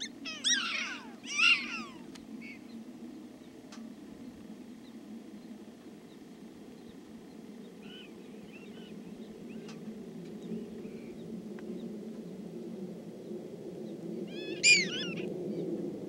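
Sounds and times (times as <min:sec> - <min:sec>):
prairie dogs chirping: 0:00.0 - 0:03.6, 0:04.2 - 0:09.8, 0:14.3 - 0:15.3
low background rumble: 0:00.0 - 0:16.0.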